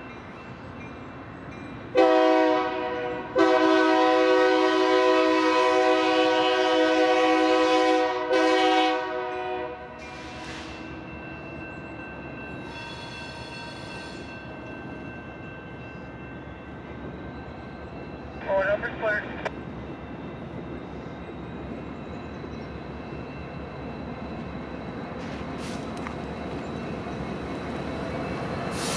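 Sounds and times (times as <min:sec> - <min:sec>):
train rumble: 0:00.0 - 0:28.9
locomotive air horn blasts: 0:02.0 - 0:10.7.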